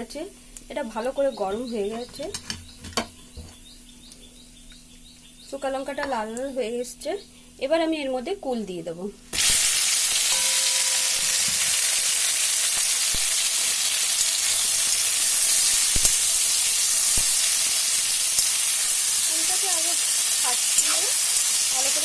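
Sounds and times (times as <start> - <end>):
berries sizzling in hot oil: 0.0 - 2.8, 9.3 - 22.0.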